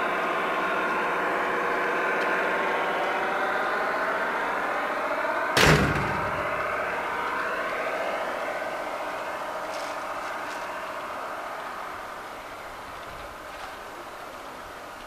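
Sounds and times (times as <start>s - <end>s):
model locomotive humming drone: 0.0s - 15.0s
loud bang: 5.6s - 7.3s.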